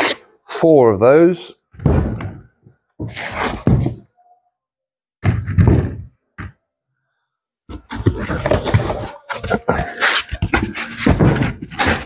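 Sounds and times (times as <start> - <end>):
cardboard boxes thudding and knocking: 1.8 - 4.1, 10.3 - 12.0.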